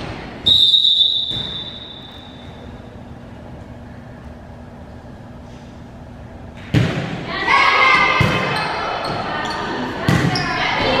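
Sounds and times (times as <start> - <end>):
referee's whistle blast: 0.4 - 2.6.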